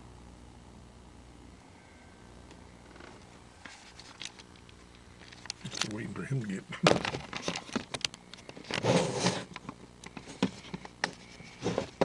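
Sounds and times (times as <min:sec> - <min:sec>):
microphone handling clicks and knocks: 0:06.8 - 0:12.0.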